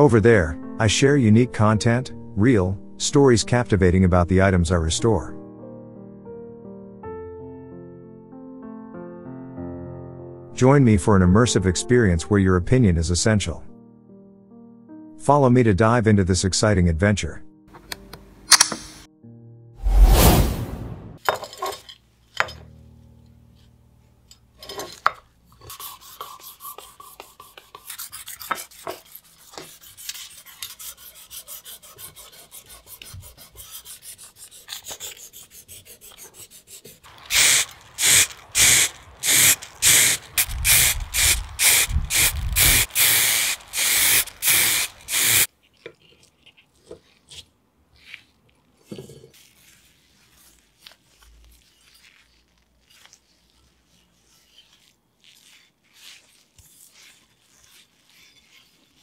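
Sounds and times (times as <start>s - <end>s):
loud rubbing strokes: 25.6s - 45.5s, 49.4s - 59.0s.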